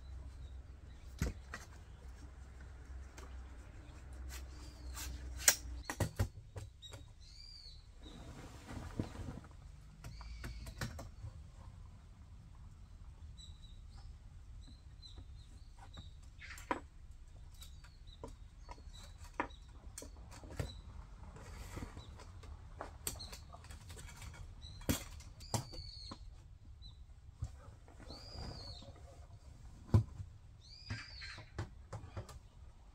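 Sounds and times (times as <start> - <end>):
tent poles clicking and knocking: 1.0 - 7.1
canvas rustling: 8.0 - 9.8.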